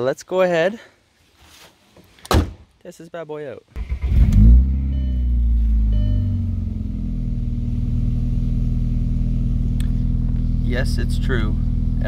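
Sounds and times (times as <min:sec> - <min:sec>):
car engine starting and idling: 0:03.8 - 0:12.0.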